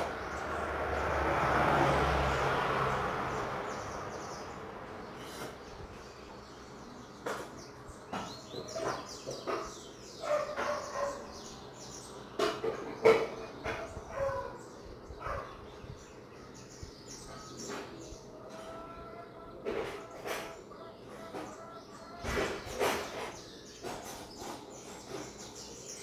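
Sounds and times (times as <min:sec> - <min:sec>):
birds chirping: 0:00.0 - 0:26.0
dog barking: 0:10.2 - 0:11.3, 0:13.7 - 0:14.6, 0:15.2 - 0:15.6.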